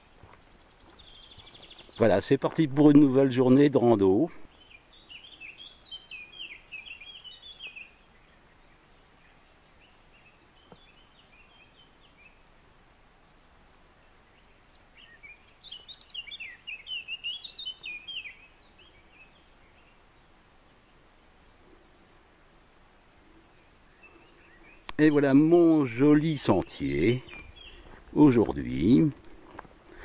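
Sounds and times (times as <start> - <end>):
songbird singing: 0.0 - 30.0.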